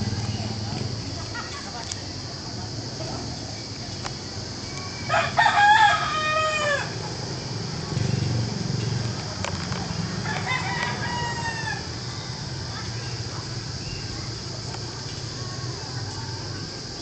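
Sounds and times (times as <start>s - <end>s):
rooster crowing: 4.8s - 7.0s, 10.2s - 11.9s.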